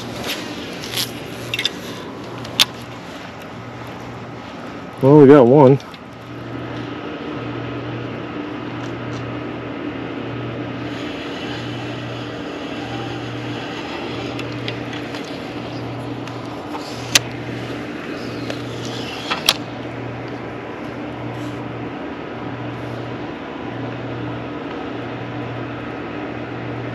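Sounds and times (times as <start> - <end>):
low throbbing drone: 0.0 - 26.9
steady mechanical hum: 0.0 - 26.9
sharp click: 18.4 - 19.7.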